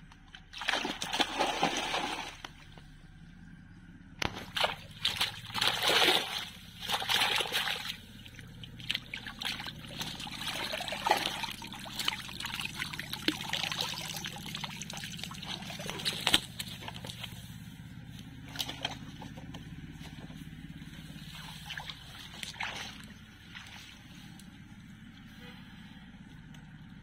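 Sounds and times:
water splashing and sloshing: 0:00.0 - 0:03.0, 0:04.2 - 0:25.8
water trickling and dripping: 0:07.0 - 0:17.2.

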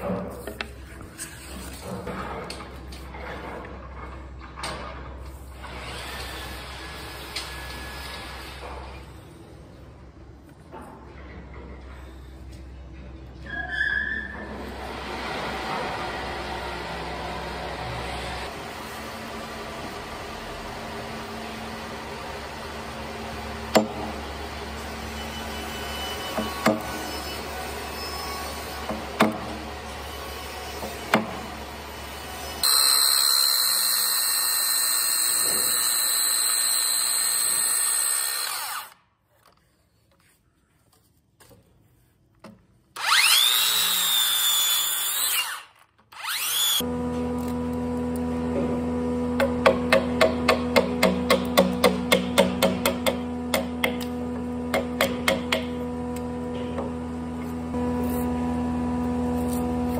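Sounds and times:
steady workshop hum: 0:00.0 - 0:59.9
circular saw cutting wood: 0:24.3 - 0:39.0, 0:43.0 - 0:59.9
hammer striking chisel handle: 0:49.4 - 0:54.1, 0:54.7 - 0:55.7.

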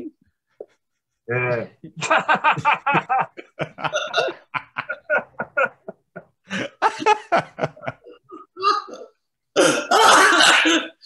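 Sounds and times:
men laughing: 0:01.8 - 0:08.6.

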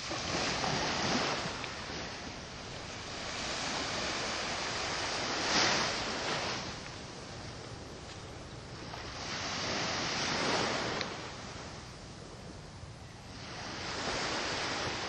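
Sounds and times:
waves washing onto shore: 0:00.0 - 0:11.9, 0:13.3 - 0:15.0
wind on microphone: 0:00.0 - 0:15.0.

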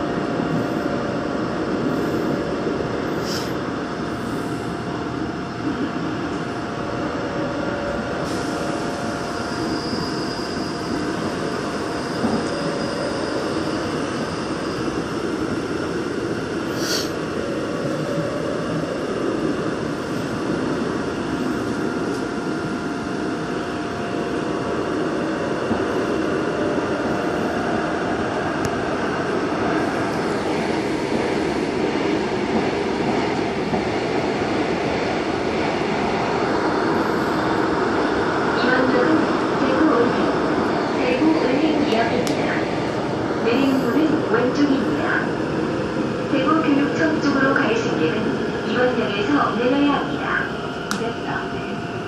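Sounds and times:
train wheels rumbling on rail: 0:00.0 - 0:52.0
brief high hisses: 0:03.2 - 0:03.5, 0:16.7 - 0:17.2.

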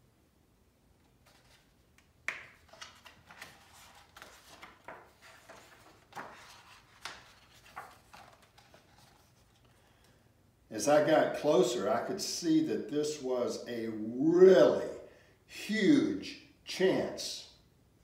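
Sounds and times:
book pages turning: 0:01.0 - 0:09.9.

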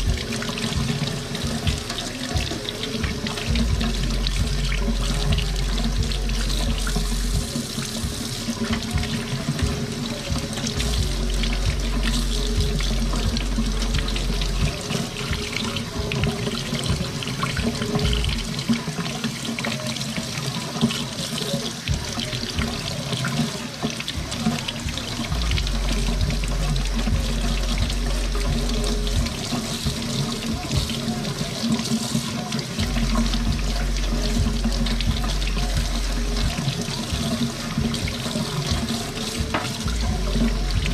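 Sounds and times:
faucet water splashing in sink: 0:00.0 - 0:40.9.

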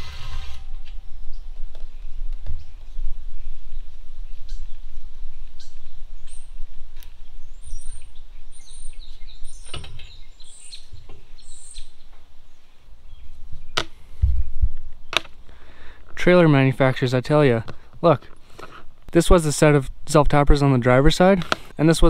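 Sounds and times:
small birds chirping: 0:01.2 - 0:16.0.

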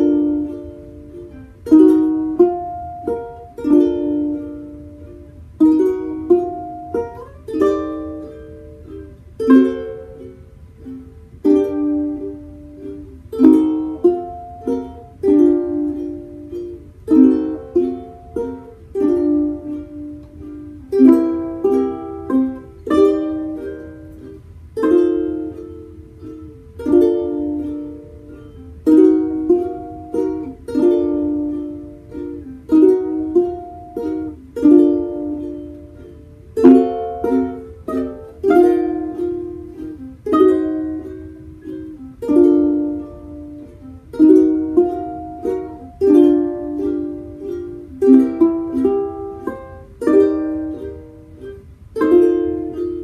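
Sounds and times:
small stringed instruments strummed: 0:00.0 - 0:53.0.

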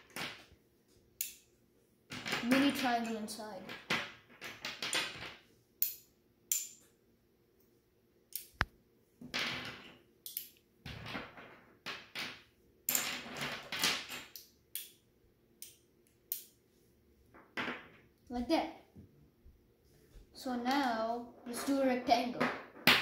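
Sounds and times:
magnetic sticks clicking together: 0:01.2 - 0:01.5, 0:05.8 - 0:06.8, 0:08.3 - 0:08.7, 0:10.2 - 0:10.6, 0:14.3 - 0:15.0, 0:15.6 - 0:16.5
sticks clattering on wooden table: 0:02.1 - 0:06.8, 0:09.2 - 0:14.4.

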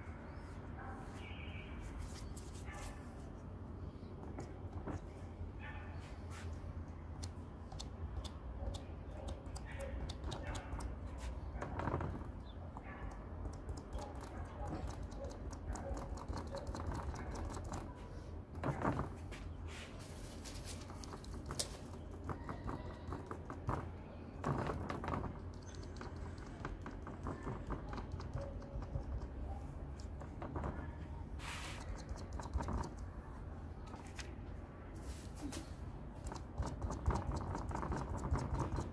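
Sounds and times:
rapid light tapping of paint: 0:06.3 - 0:19.6, 0:20.2 - 0:34.4, 0:36.1 - 0:38.9.

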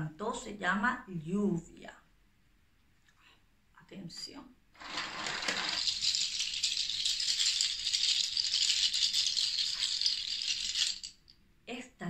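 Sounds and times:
bundle rattle clattering: 0:04.8 - 0:11.3.

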